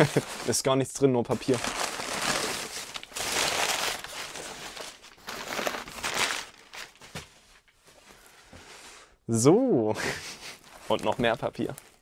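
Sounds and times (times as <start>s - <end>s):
packing paper crinkling: 0.0s - 7.9s, 10.4s - 12.0s.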